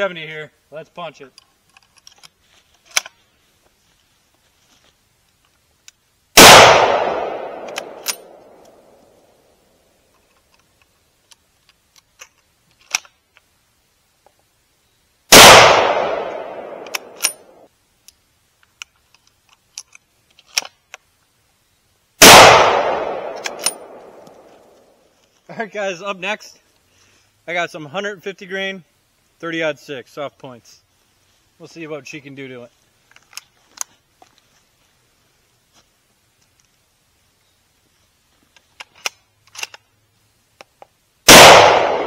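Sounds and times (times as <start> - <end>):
rifle shots with echo: 6.4 - 8.9, 15.3 - 17.6, 22.2 - 24.5, 41.3 - 42.0
rifle bolt clicking: 7.6 - 8.8, 16.8 - 17.4, 23.3 - 24.4.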